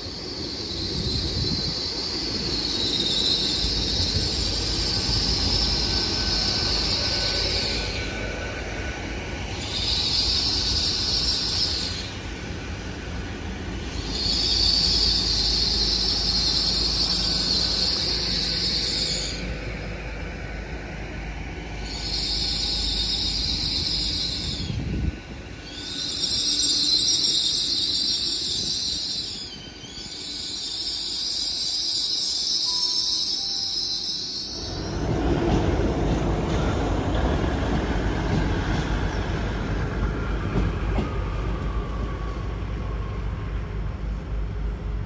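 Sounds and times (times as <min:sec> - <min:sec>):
train rumbling: 0:00.0 - 0:45.0
high-pitched wheel squeal: 0:00.2 - 0:08.3, 0:09.5 - 0:12.2, 0:13.9 - 0:19.5, 0:21.8 - 0:25.0, 0:25.6 - 0:35.1.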